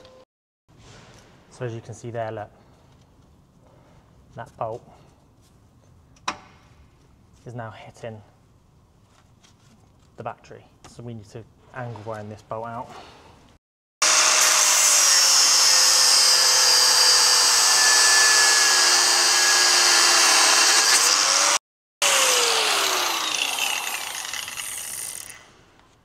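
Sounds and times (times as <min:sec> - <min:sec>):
angle grinder cutting bolt: 0:14.0 - 0:25.6.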